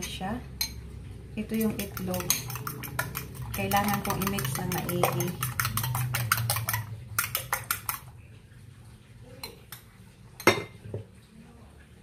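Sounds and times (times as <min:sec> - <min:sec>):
utensil clicking against glass bowl: 0:01.6 - 0:08.1.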